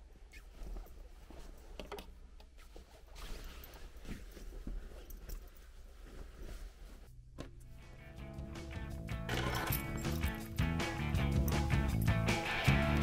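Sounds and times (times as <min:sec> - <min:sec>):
fabric rustling: 0:00.0 - 0:07.2.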